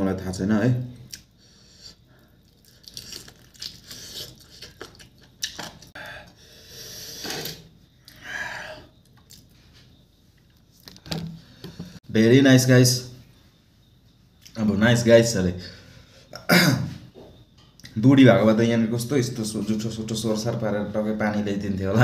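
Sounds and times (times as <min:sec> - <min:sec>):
person crunching and chewing: 0:02.4 - 0:05.9.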